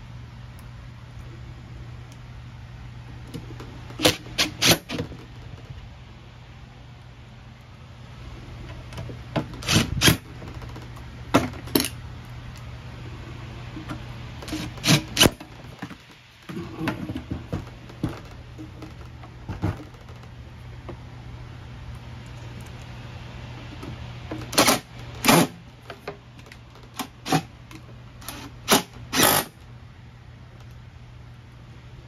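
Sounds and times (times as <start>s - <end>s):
cordless drill driving screws: 4.0s - 5.0s, 9.6s - 10.2s, 28.2s - 29.5s.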